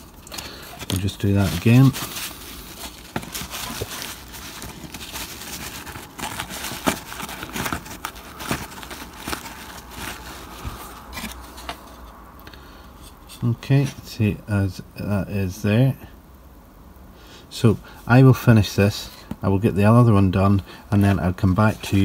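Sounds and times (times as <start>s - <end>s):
paper towel rustling: 0.0s - 12.0s.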